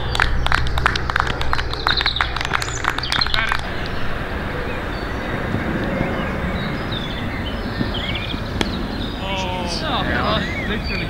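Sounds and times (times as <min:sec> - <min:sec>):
scattered hand clapping: 0:00.0 - 0:04.0
bird chirps: 0:00.0 - 0:11.0
open-air ambience: 0:00.0 - 0:11.0.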